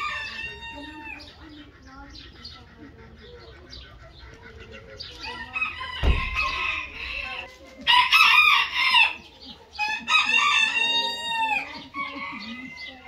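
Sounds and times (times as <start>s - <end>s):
chickens clucking: 0.0s - 13.0s
low thump: 6.0s - 6.7s.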